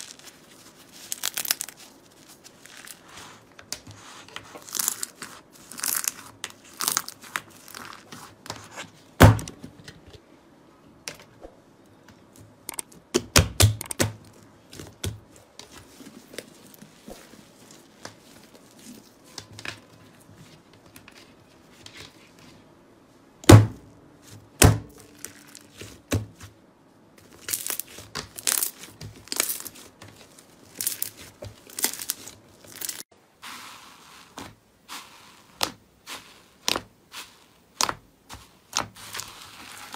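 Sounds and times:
slime crackling and squelching: 0:00.0 - 0:08.8, 0:14.1 - 0:20.1, 0:24.9 - 0:26.4, 0:27.2 - 0:39.9.

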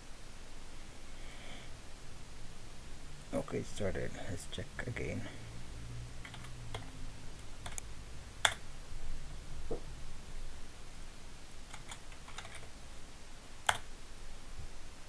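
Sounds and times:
computer keyboard keys clicking: 0:06.2 - 0:06.9, 0:07.6 - 0:07.8, 0:11.7 - 0:12.7, 0:13.7 - 0:13.9.

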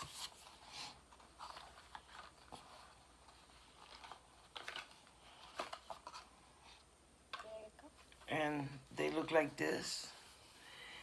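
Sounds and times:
packaging rustling: 0:00.0 - 0:06.4.

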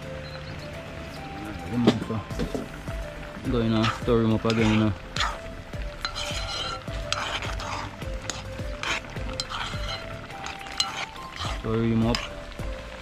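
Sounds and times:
metal spoon scraping pot: 0:03.6 - 0:12.6.

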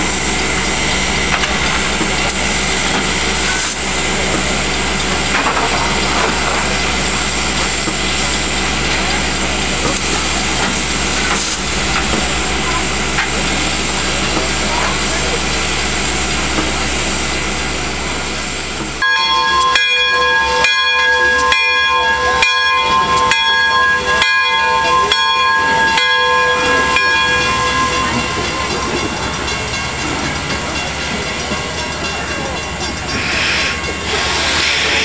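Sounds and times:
locomotive steam hissing: 0:00.0 - 0:35.0
steam whistle chord: 0:19.0 - 0:29.4.

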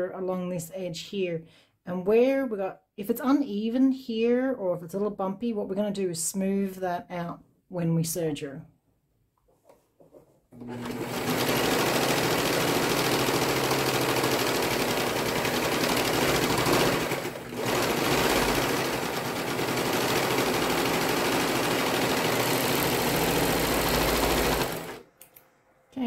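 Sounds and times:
serger sewing machine running: 0:10.6 - 0:25.1.

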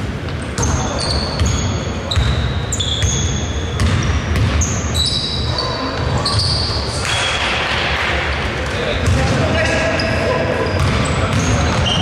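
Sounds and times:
sneaker squeaks on floor: 0:00.4 - 0:07.5, 0:09.0 - 0:12.0
basketball bouncing: 0:01.4 - 0:04.7, 0:09.0 - 0:09.5, 0:10.8 - 0:12.0.

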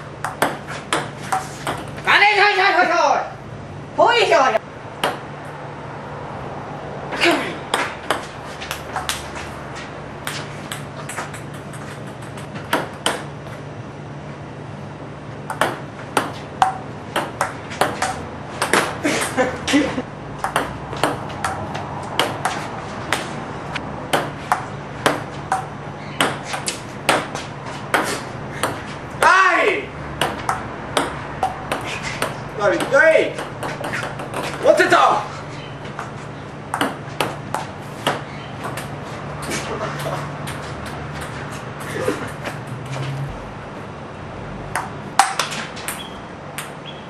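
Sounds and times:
steady low hum: 0:03.3 - 0:29.2, 0:35.2 - 0:46.8
table tennis ball clicking: 0:10.7 - 0:13.2.

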